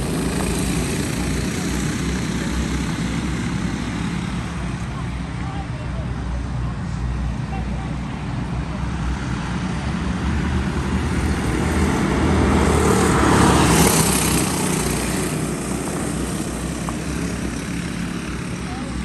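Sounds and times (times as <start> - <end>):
racing kart engines passing: 0.0 - 19.0.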